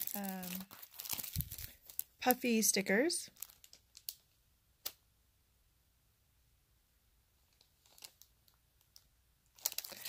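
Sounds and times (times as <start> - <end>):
plastic packaging crinkling: 0.0 - 4.4, 7.5 - 10.0.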